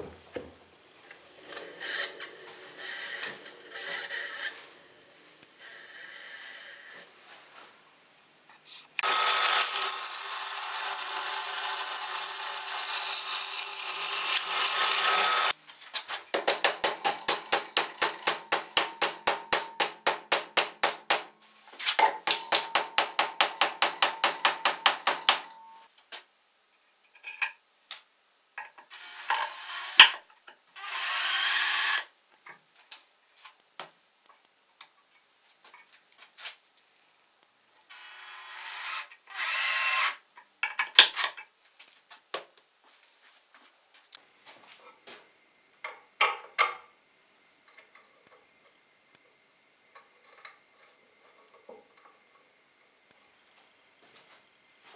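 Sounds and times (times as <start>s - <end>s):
cordless drill bursts: 9.0s - 15.5s, 38.6s - 40.2s
drill press boring through steel: 9.0s - 15.5s.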